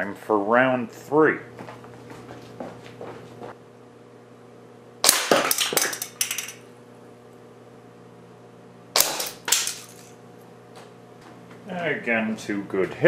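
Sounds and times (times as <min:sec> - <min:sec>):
air rifle shot: 0:05.0 - 0:05.8.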